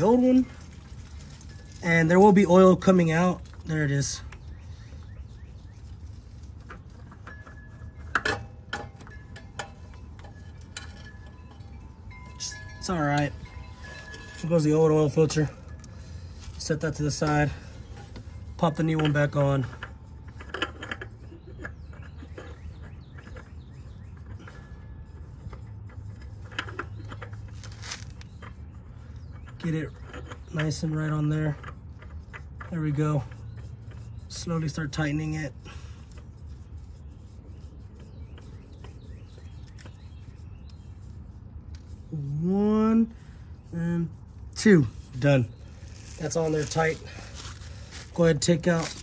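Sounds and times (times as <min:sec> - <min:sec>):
oil filter clicks and rubs: 0:00.0 - 0:11.7, 0:14.1 - 0:49.0
faint bird chirps: 0:03.6 - 0:08.2, 0:19.7 - 0:26.0, 0:36.5 - 0:42.2.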